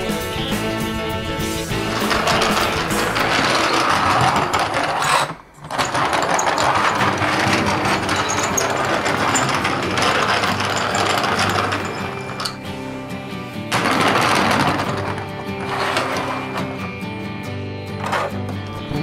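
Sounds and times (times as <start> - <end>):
toy truck rattling: 1.7 - 13.1, 13.7 - 16.9.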